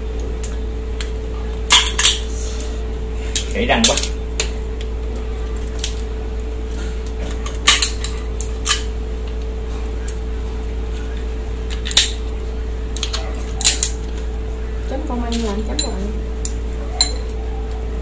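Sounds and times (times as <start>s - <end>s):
steady low hum: 0.0s - 18.0s
dishes and utensils clinking: 15.3s - 16.2s, 16.9s - 17.4s.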